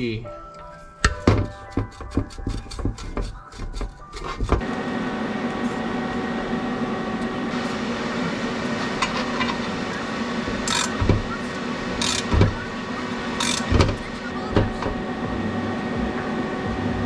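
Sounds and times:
welder humming and crackling: 4.3 - 17.0.

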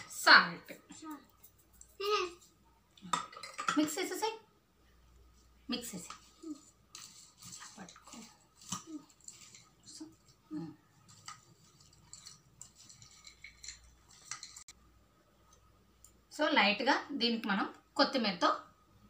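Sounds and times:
plastic spoon stirring popcorn: 5.8 - 14.8.

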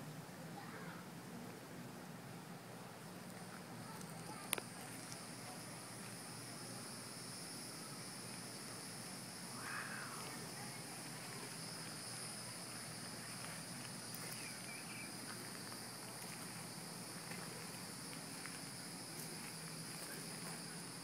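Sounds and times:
high-pitched insect chorus: 3.8 - 21.0
faint chirp: 9.5 - 15.5.

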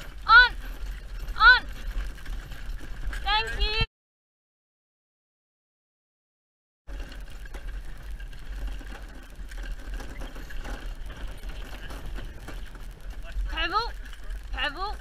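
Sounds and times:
carriage and harness rattles: 0.0 - 3.9, 6.9 - 15.0
carriage rumbling: 0.0 - 3.9, 6.9 - 15.0.

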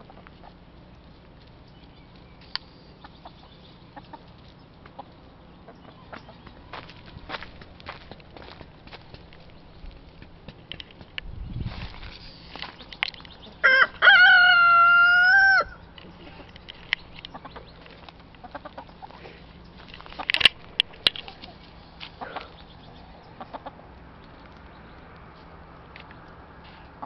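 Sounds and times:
chickens clucking: 0.0 - 11.0, 11.9 - 25.2
rooster crowing: 13.6 - 15.8.

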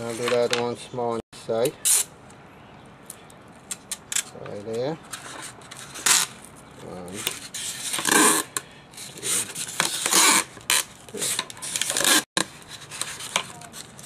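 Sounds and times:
tape pulled off roll: 9.2 - 14.0.

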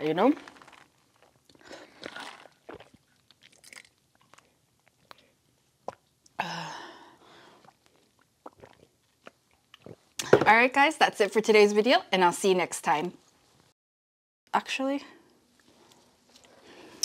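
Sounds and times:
swallowing: 1.2 - 6.1, 7.4 - 10.3.

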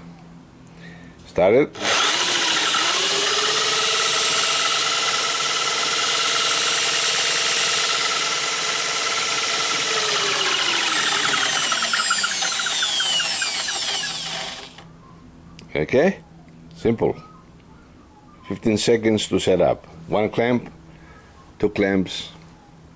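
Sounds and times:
electric drill motor whine: 1.8 - 14.8.

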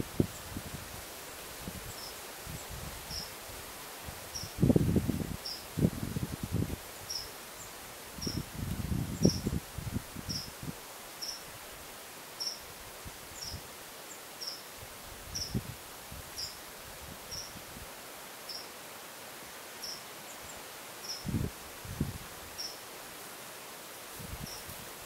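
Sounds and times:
wind buffeting microphone: 4.4 - 6.8, 8.2 - 10.8, 21.2 - 22.3.

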